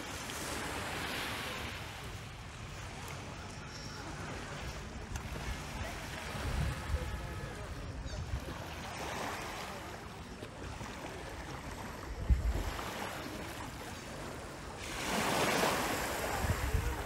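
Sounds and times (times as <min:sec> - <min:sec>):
small waves lapping: 0:00.0 - 0:17.0
wind rumble on microphone: 0:05.3 - 0:08.6, 0:12.0 - 0:12.8, 0:16.1 - 0:17.0.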